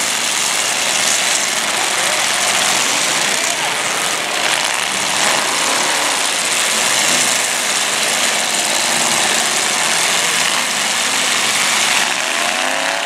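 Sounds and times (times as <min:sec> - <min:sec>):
car engines running loud: 0:00.0 - 0:13.0.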